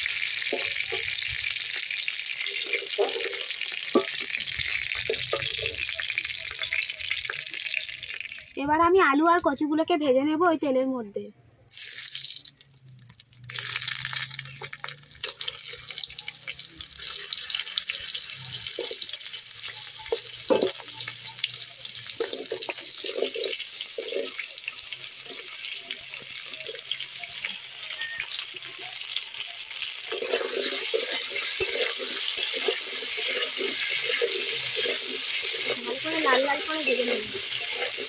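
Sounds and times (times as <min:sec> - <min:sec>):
food sizzling in hot oil: 0:00.0 - 0:09.2, 0:11.7 - 0:38.0
spatula clattering and scraping: 0:00.4 - 0:05.8, 0:18.6 - 0:27.0, 0:30.0 - 0:38.0.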